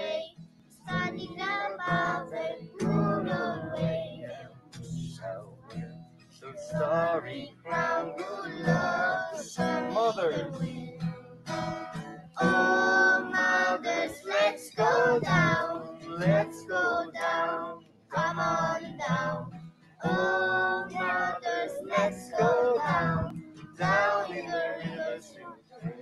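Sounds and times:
young girl singing: 0:00.0 - 0:05.8, 0:06.5 - 0:11.1, 0:12.2 - 0:26.0
acoustic guitar: 0:00.0 - 0:26.0.

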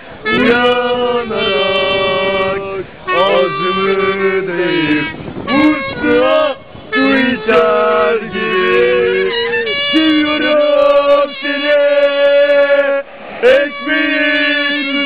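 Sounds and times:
instrumental accompaniment: 0:00.2 - 0:11.7
person singing: 0:00.3 - 0:15.0.

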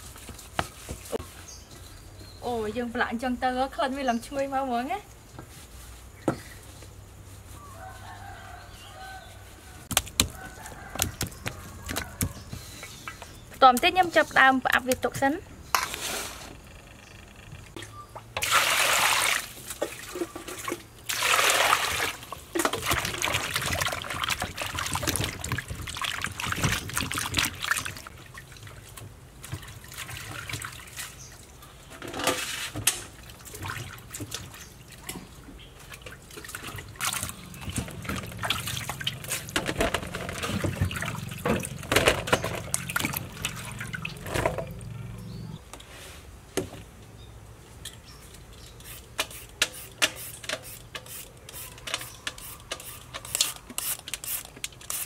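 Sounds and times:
vegetables splashing in water basin: 0:18.4 - 0:31.5, 0:33.1 - 0:44.9
water running and dripping: 0:33.2 - 0:45.0.

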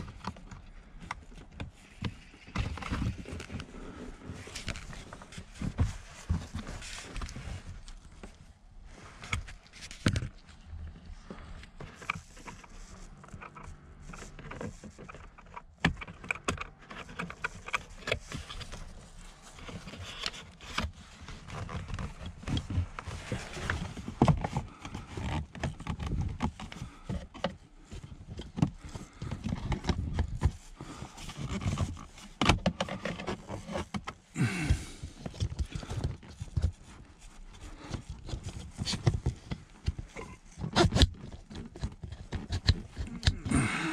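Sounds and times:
plastic parts clicking and rustling: 0:11.7 - 0:43.9.

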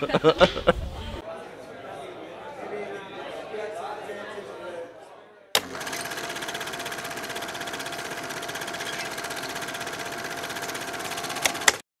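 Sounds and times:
rapid mechanical clatter: 0:05.6 - 0:11.8.

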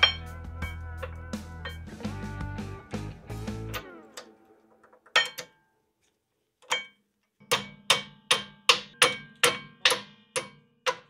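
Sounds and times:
hammer tapping on metal: 0:05.0 - 0:05.6, 0:06.6 - 0:11.0.

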